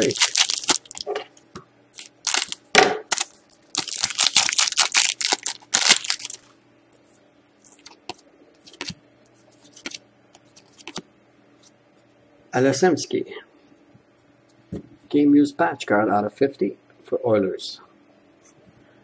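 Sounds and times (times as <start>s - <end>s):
foil wrapper crinkling: 0.0s - 1.1s, 2.0s - 6.5s, 7.6s - 9.0s, 9.6s - 11.0s
scissors cutting foil pack: 0.0s - 1.1s, 2.0s - 6.4s
cards being shuffled: 0.0s - 1.2s, 2.0s - 6.5s, 7.6s - 11.0s.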